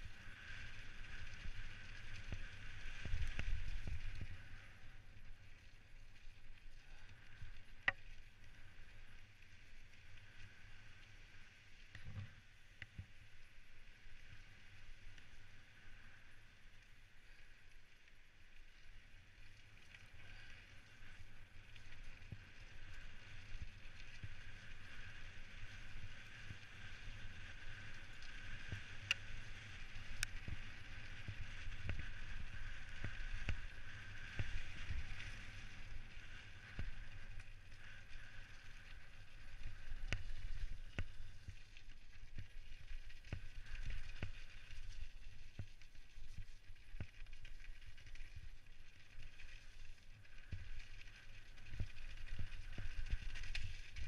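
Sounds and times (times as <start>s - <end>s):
bike tyres rumbling over gravel: 18.2s - 54.0s.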